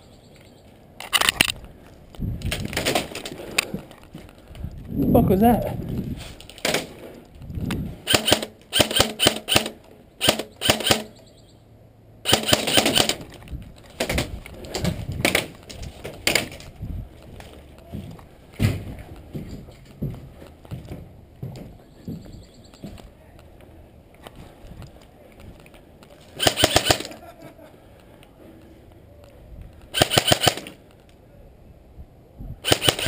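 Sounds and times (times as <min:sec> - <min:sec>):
airsoft rifle shots: 0:08.0 - 0:11.2, 0:12.2 - 0:13.3, 0:26.4 - 0:27.1, 0:29.9 - 0:30.8, 0:32.6 - 0:33.0.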